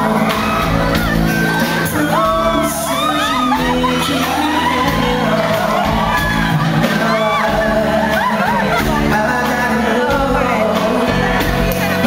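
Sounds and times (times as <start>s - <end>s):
audience whooping and cheering: 0.0s - 10.8s
live rock band playing: 0.0s - 12.0s.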